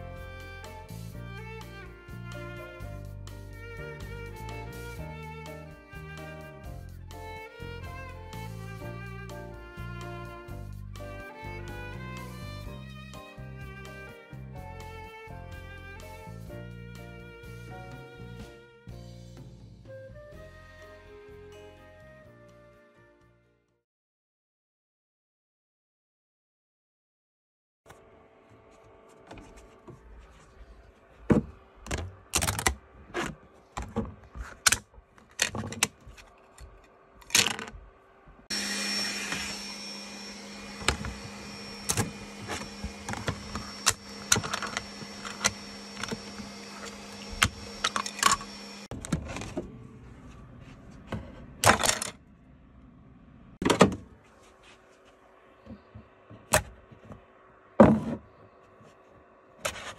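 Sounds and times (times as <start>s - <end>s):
mechanical hum: 27.9s - 59.9s
plastic parts clicking and snapping: 31.9s - 37.8s.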